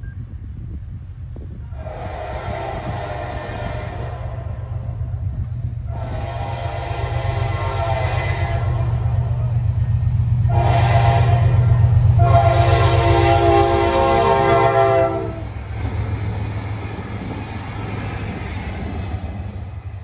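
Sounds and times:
low locomotive engine drone: 0:00.0 - 0:20.0
locomotive horn: 0:01.7 - 0:05.2, 0:05.8 - 0:09.6, 0:10.4 - 0:15.6.

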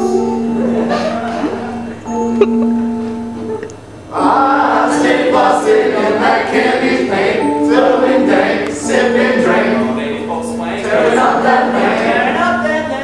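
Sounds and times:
mixed choir singing: 0:04.1 - 0:12.6.

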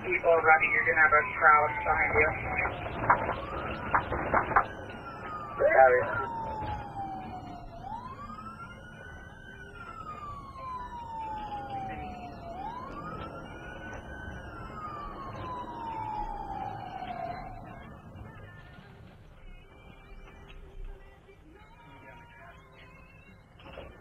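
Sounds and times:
siren wailing: 0:00.0 - 0:18.3
road noise rumble: 0:00.0 - 0:24.0.

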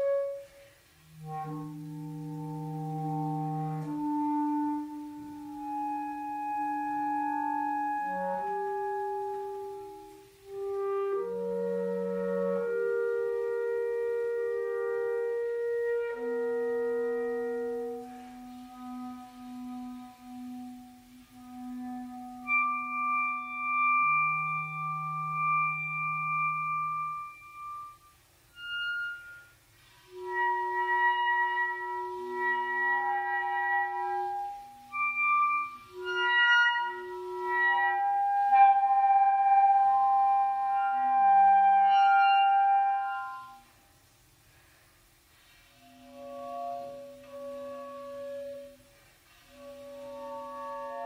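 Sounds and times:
clarinet duet: 0:00.0 - 0:51.0.

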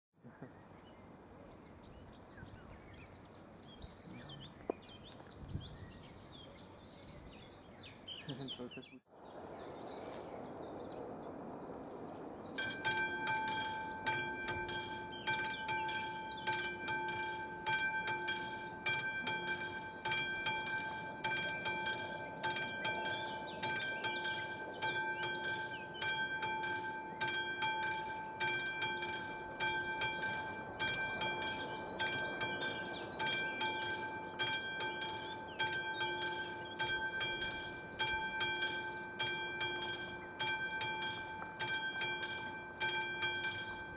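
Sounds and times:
level crossing bell ringing: 0:12.6 - 0:43.9.

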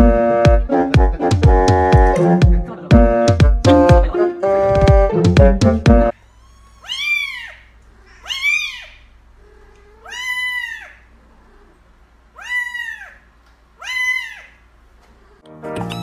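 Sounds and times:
kitten meowing: 0:06.3 - 0:11.7, 0:12.4 - 0:13.2, 0:13.8 - 0:14.6, 0:15.8 - 0:16.0.

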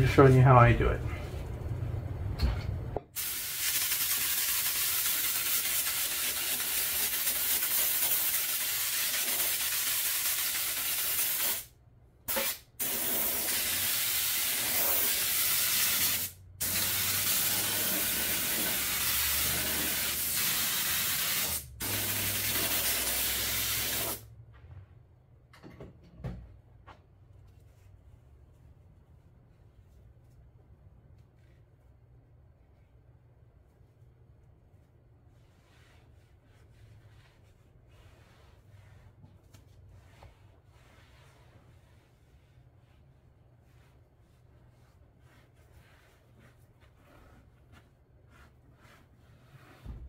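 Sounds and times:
spray adhesive hissing: 0:03.2 - 0:11.7, 0:12.3 - 0:24.2.

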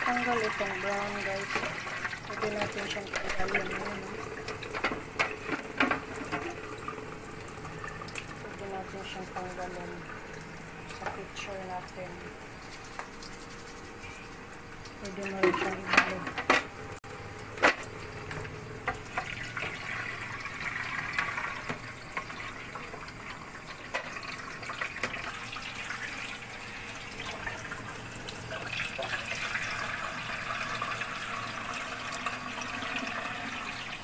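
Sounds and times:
tap water splashing into pitcher: 0:17.4 - 0:26.4.

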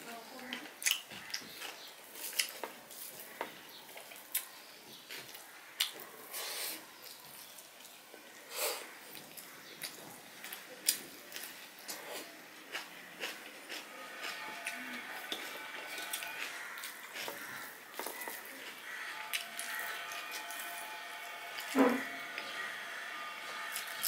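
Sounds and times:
wet chewing and lip smacks: 0:00.8 - 0:02.7.

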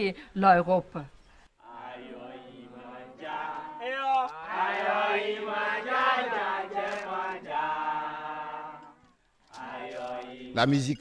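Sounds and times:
group of voices chanting: 0:01.6 - 0:08.9.

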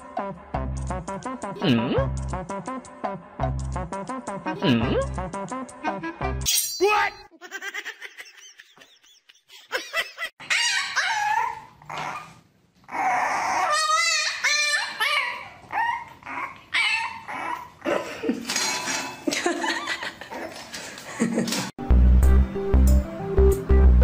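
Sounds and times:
puppy whining and yipping: 0:10.4 - 0:17.8.

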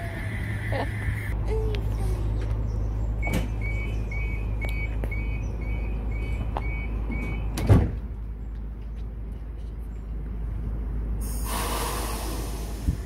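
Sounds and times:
train equipment hum: 0:00.0 - 0:13.0
rapid high warning beeps: 0:03.2 - 0:07.5
sliding doors thudding shut: 0:07.2 - 0:08.0.

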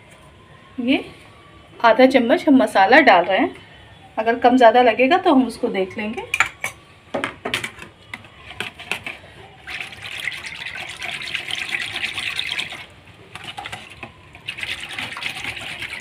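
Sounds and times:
whisk swishing in a bowl: 0:08.4 - 0:16.0.

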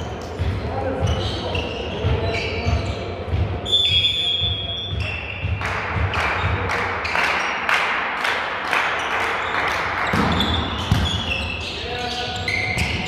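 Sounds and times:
referee's whistle: 0:03.6 - 0:05.6
sharp claps or beats: 0:05.4 - 0:10.5.

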